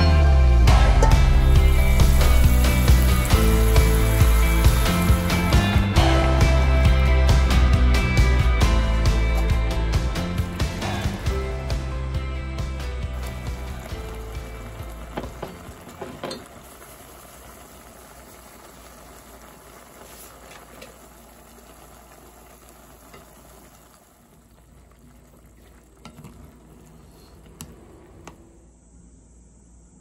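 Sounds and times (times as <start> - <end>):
glaze bubbling in a pan: 1.6 - 5.8, 13.1 - 27.8.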